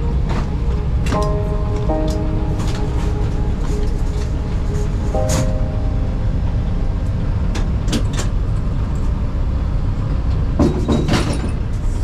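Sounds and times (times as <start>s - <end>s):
vehicle rumble from inside: 0.0s - 12.0s.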